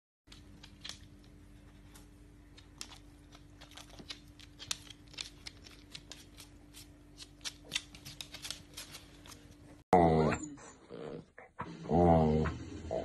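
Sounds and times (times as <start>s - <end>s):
dog claws clicking on hard floor: 0.3s - 9.6s.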